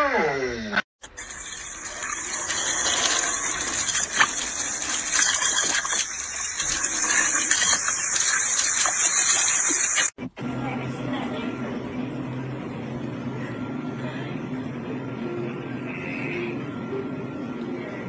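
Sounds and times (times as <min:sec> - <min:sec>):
hose water spraying on hull: 0:01.0 - 0:10.1.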